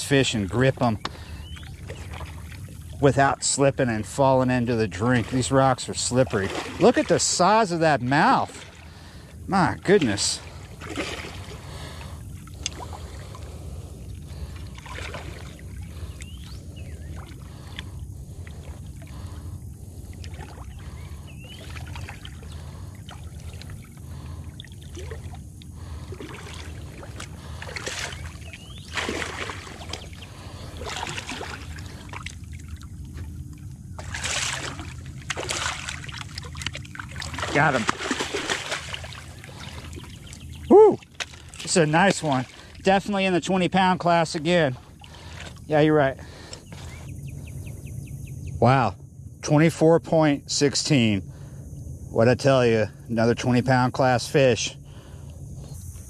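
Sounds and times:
steady low rumble: 0:00.0 - 0:56.0
fish thrashing and splashing: 0:01.2 - 0:03.1, 0:04.7 - 0:43.2.

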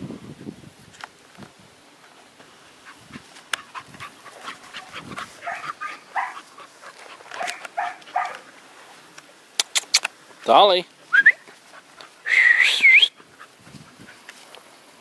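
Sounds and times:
light clicks and rustles: 0:06.5 - 0:10.5.

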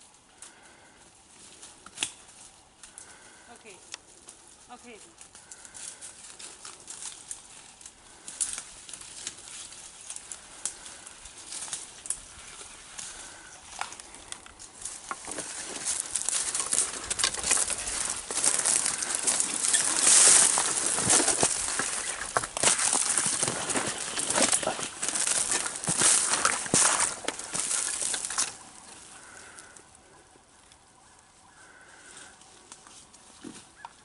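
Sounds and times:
twigs crackling: 0:00.0 - 0:34.0
footsteps crunching dry leaves: 0:03.1 - 0:29.8.

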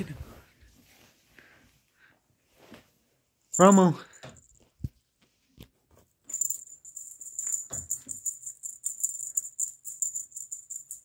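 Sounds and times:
small bell jingling: 0:03.5 - 0:04.6, 0:06.3 - 0:11.0.

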